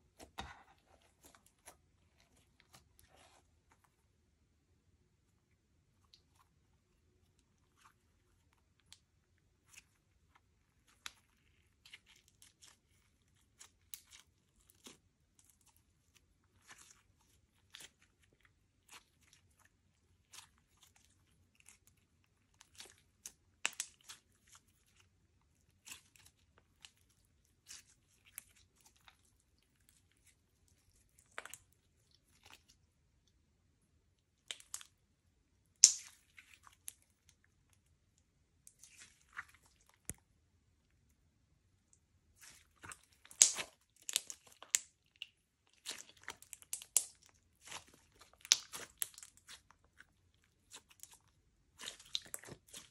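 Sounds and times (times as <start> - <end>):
slime crackling and popping: 22.5 - 24.9, 35.7 - 37.3, 42.4 - 50.0, 50.6 - 52.9.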